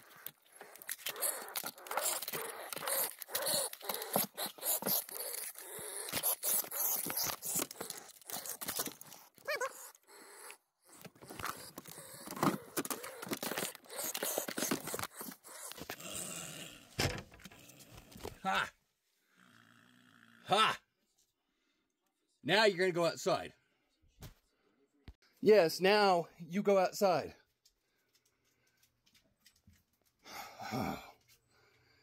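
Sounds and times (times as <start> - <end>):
animal cry: 0.0 - 16.9.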